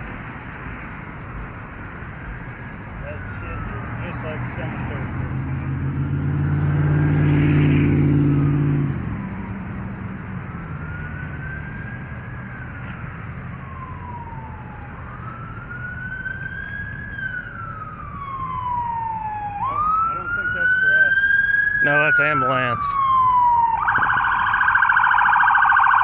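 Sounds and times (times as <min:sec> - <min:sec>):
vehicle engine humming: 0:00.0 - 0:26.0
ambulance siren wailing: 0:01.3 - 0:26.0.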